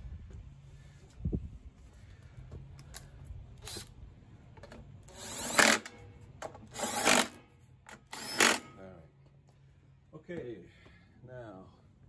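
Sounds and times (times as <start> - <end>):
handheld power tool running: 5.1 - 6.0, 6.6 - 8.7.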